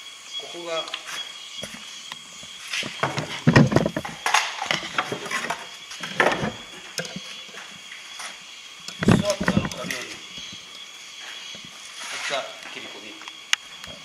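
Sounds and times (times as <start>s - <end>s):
knocks and clatters of wood and metal: 2.4s - 10.7s.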